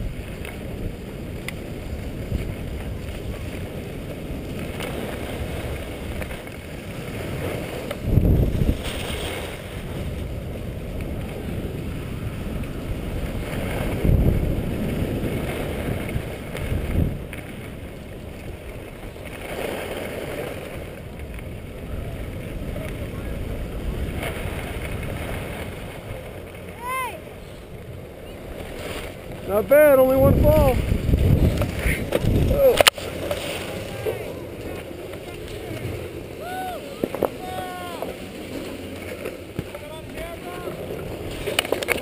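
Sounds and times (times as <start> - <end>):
wind rushing over microphone: 0.0 - 42.0
skis scraping on packed snow: 28.6 - 36.3.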